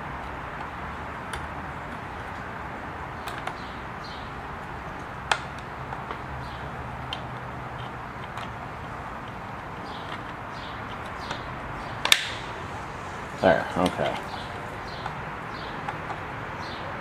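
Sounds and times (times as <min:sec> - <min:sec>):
steady background noise: 0:00.0 - 0:17.0
small metal clicks and taps: 0:05.2 - 0:08.6.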